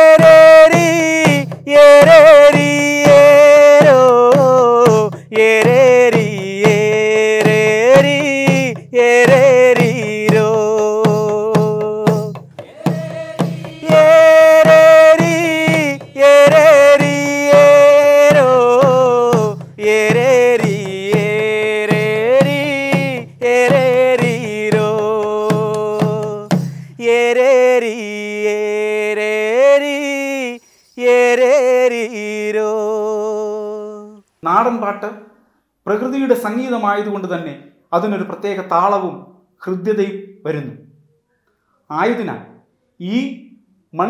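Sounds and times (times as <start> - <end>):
drum beat: 0.0 - 27.4
person singing folk melody: 0.0 - 34.3.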